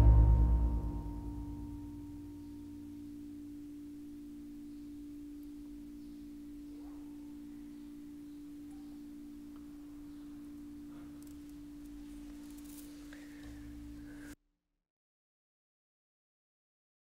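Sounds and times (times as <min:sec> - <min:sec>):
metal rods ringing tone: 0:00.0 - 0:14.2.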